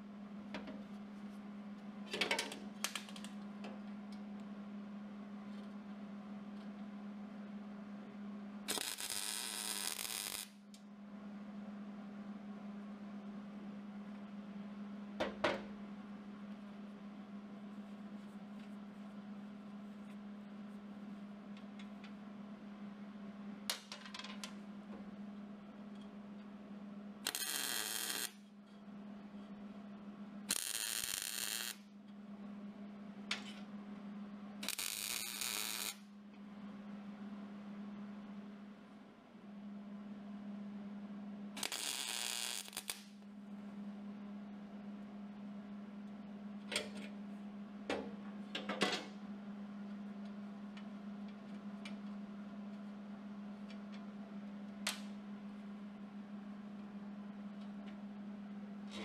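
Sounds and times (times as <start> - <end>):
steady low hum: 0.0 - 59.0
welding arc crackle: 8.7 - 10.6, 27.2 - 28.4, 30.5 - 31.8, 34.6 - 36.0, 41.6 - 43.2.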